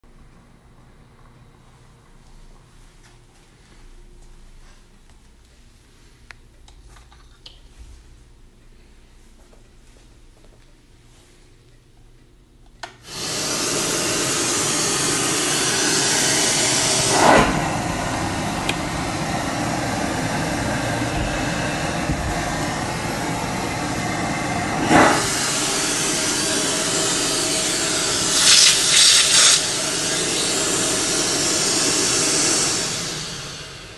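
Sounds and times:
vacuum suction hiss: 0:13.0 - 0:33.9
short hissing bursts: 0:13.1 - 0:18.6, 0:19.4 - 0:33.9.

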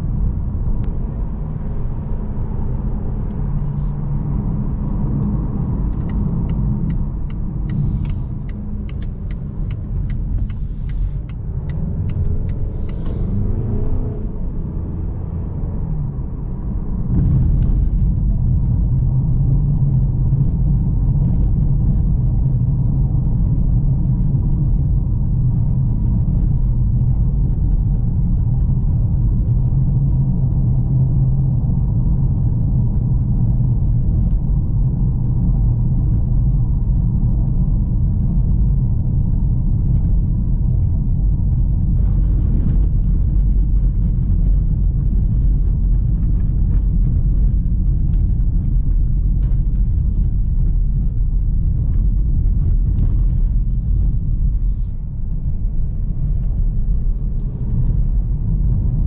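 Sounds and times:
car engine and road rumble: 0:00.0 - 0:59.0
regular ticks: 0:05.9 - 0:13.4.

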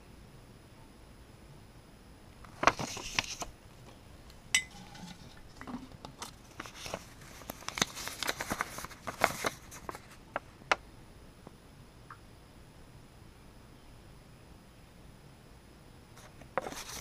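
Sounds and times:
paper crinkling and rustling: 0:02.4 - 0:03.9, 0:04.8 - 0:10.5, 0:16.2 - 0:17.0
glass jar clink: 0:04.5 - 0:05.4.

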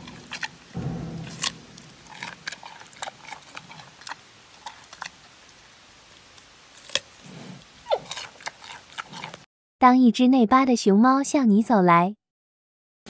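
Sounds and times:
panda crunching carrot: 0:00.0 - 0:09.4.

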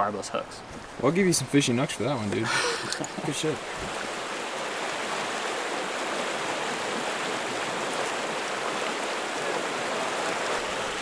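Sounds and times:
river rushing over rocks: 0:01.0 - 0:11.0.

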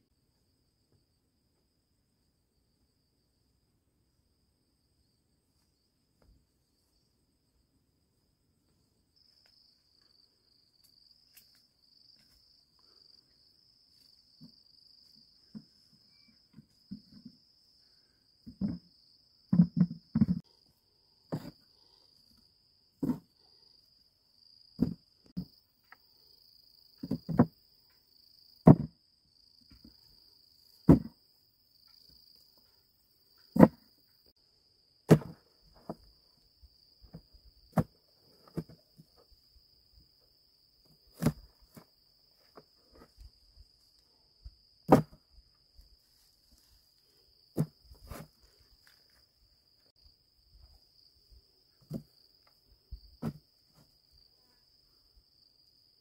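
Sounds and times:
insects chirring: 0:08.3 - 0:56.0
heavy thuds of roots dropped: 0:30.9 - 0:31.2, 0:35.1 - 0:36.0, 0:44.9 - 0:45.2, 0:53.2 - 0:53.4.

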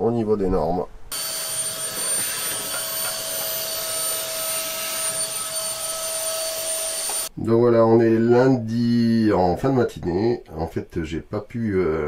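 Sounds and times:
vacuum cleaner running: 0:01.1 - 0:07.3.

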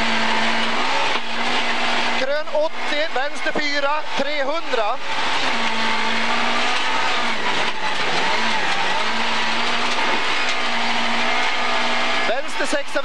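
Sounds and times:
rally car engine revving hard: 0:00.0 - 0:13.0.

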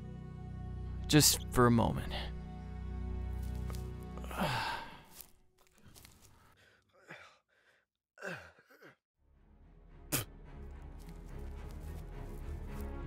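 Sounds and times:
soft film score: 0:00.0 - 0:13.0
man sighing and groaning: 0:04.2 - 0:09.0, 0:10.1 - 0:10.4.

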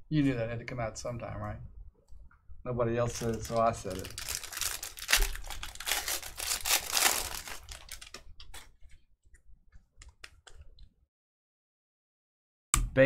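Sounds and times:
wrapper tearing and crinkling: 0:03.1 - 0:08.7.

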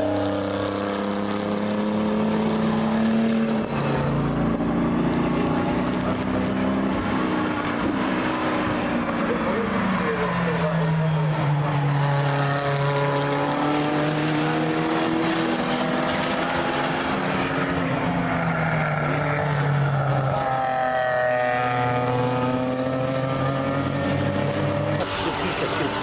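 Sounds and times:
race cars passing at speed: 0:00.0 - 0:26.0.

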